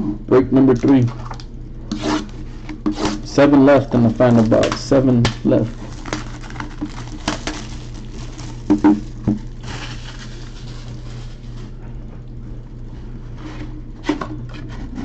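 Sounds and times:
steady low hum: 0:00.0 - 0:15.0
plastic shrink wrap tearing: 0:03.8 - 0:11.7.

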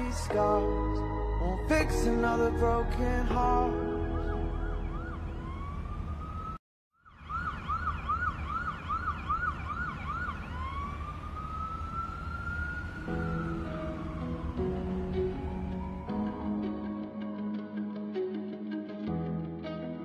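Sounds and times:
low bass: 0:00.0 - 0:05.5
siren-like synth sweeping: 0:03.9 - 0:16.3.

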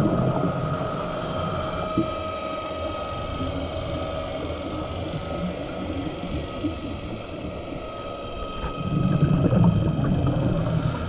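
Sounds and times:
faint steady whine: 0:00.0 - 0:11.0
underwater rushing noise: 0:00.0 - 0:11.0
low underwater rumble: 0:04.5 - 0:11.0.

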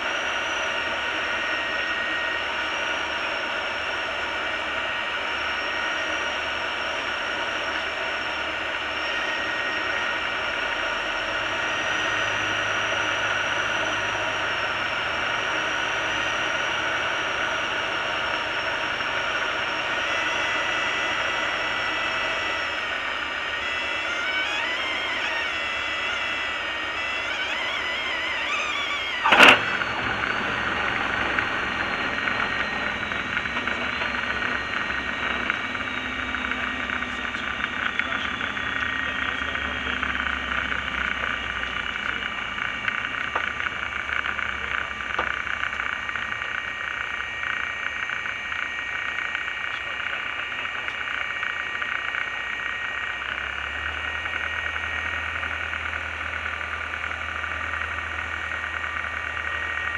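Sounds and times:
light aircraft engine and propeller: 0:00.0 - 0:59.9
low hum: 0:00.0 - 0:59.9
faint high falling tone: 0:23.8 - 0:40.2.

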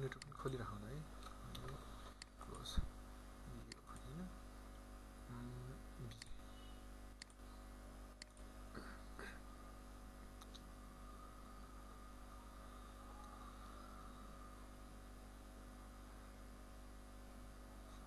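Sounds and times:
low electrical hum: 0:00.0 - 0:18.0
computer mouse clicks: 0:01.2 - 0:02.6, 0:07.2 - 0:07.4, 0:08.2 - 0:08.5.

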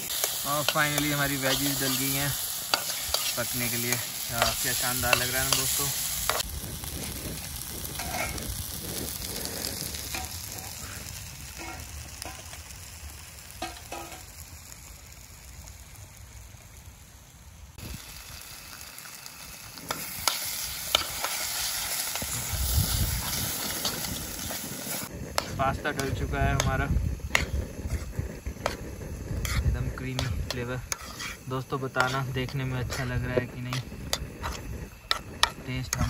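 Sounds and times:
spoon scraping a pan: 0:00.0 - 0:06.4, 0:07.8 - 0:08.6, 0:09.4 - 0:10.8, 0:11.6 - 0:12.6, 0:13.6 - 0:14.2, 0:23.2 - 0:36.0
vegetables sizzling in a pan: 0:00.0 - 0:36.0.

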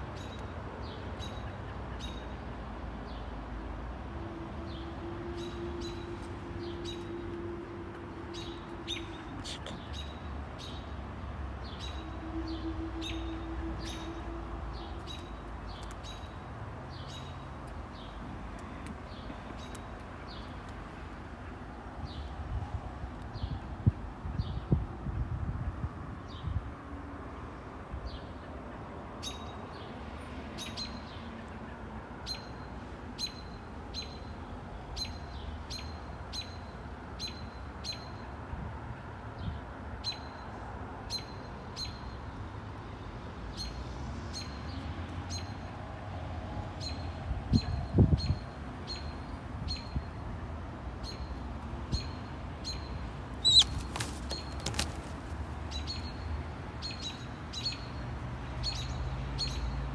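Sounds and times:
hawk begging call: 0:53.4 - 0:53.8
wing flaps: 0:53.4 - 0:55.6.

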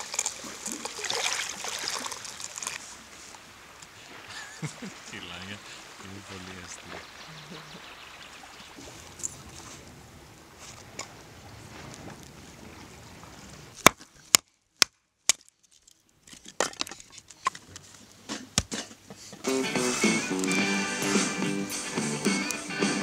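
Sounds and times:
knife splitting wood on block: 0:18.3 - 0:19.1.

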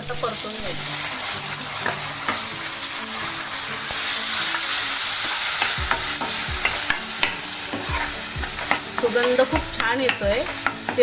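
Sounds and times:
paste sizzling in hot oil: 0:00.0 - 0:11.0
metal spatula scraping pan: 0:05.6 - 0:11.0.

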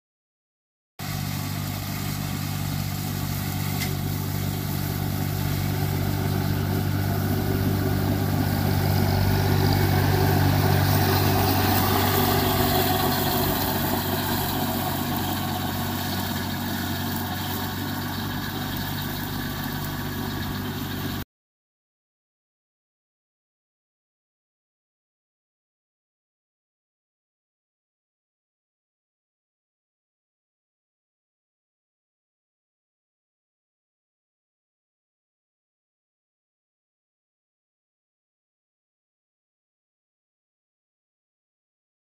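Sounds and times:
tractor engine running: 0:01.0 - 0:21.2.

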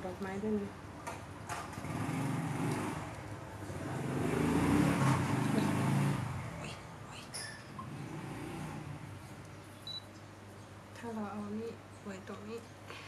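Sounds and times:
vehicle engine passing: 0:01.7 - 0:06.9, 0:07.7 - 0:09.4.

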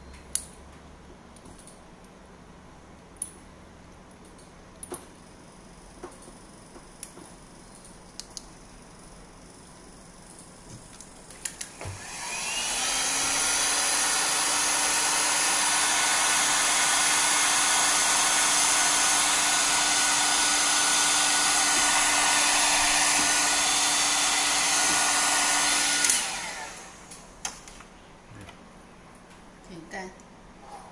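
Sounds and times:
heat gun fan whirring: 0:10.8 - 0:28.6.

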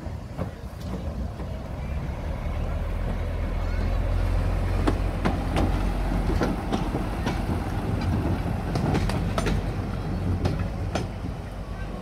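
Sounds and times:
diesel locomotive engine: 0:00.0 - 0:12.0
wheels clicking over rail joints: 0:00.0 - 0:12.0.

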